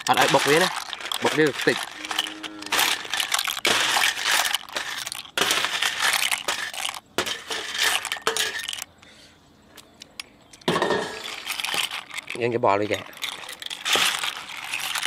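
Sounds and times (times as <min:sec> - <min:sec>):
shells clattering with metal spoon: 0:00.0 - 0:08.9, 0:10.2 - 0:15.0.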